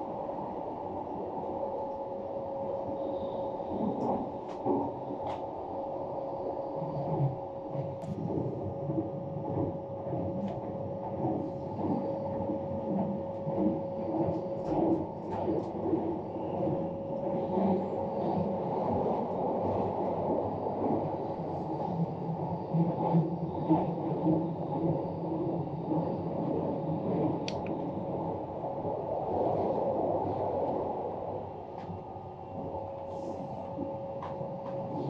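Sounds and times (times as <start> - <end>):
faint hum: 0.0 - 35.0
train running rumble: 0.0 - 35.0.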